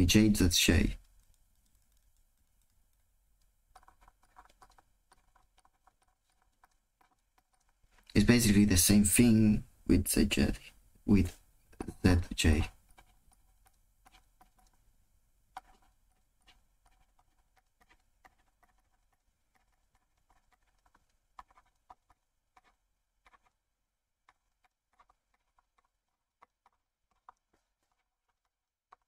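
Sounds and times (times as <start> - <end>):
stylus tapping on tablet: 1.0 - 8.2, 15.5 - 23.6, 24.2 - 29.0.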